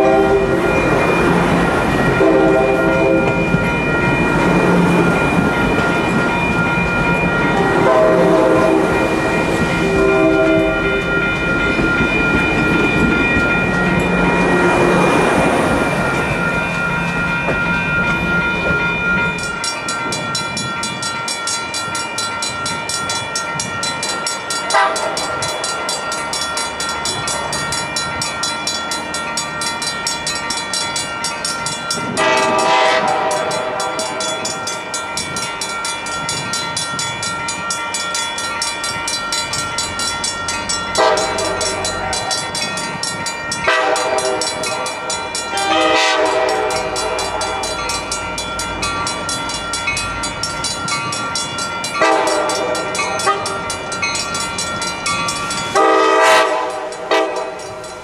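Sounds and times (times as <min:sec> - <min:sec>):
train air horn blasts: 0:00.0 - 0:00.8, 0:02.2 - 0:03.5, 0:07.6 - 0:09.2, 0:09.8 - 0:11.0, 0:24.7 - 0:25.3, 0:32.1 - 0:34.2, 0:41.0 - 0:41.9, 0:43.7 - 0:44.7, 0:45.6 - 0:47.5, 0:52.0 - 0:53.6, 0:55.8 - 0:57.6
train running noise: 0:00.0 - 0:58.0.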